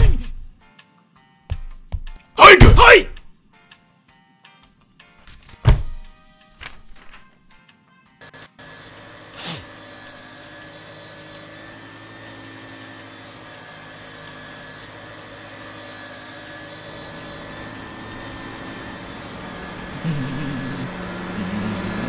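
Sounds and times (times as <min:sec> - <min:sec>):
paper shredder motor whirring: 0:08.2 - 0:22.0.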